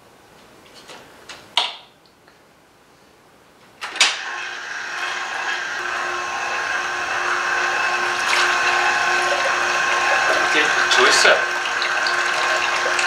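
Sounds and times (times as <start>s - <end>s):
juicer motor humming: 3.8s - 13.0s.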